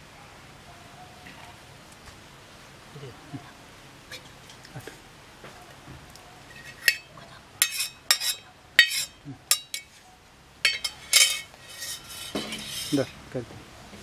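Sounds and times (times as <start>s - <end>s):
steel bowl clinking against pan: 6.6s - 9.9s, 10.6s - 13.2s.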